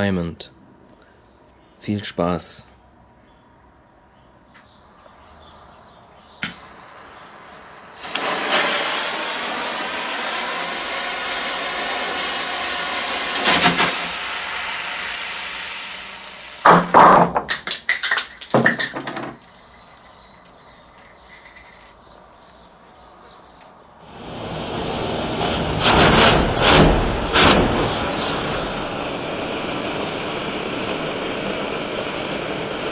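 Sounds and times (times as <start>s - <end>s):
fuse hissing: 5.2s - 17.1s, 27.4s - 32.9s
fireworks popping: 5.4s - 22.1s, 24.0s - 32.9s.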